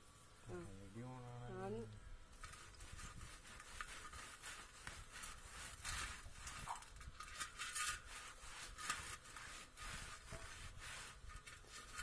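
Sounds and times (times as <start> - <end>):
cloth scrubbing metal rim: 2.4 - 12.0.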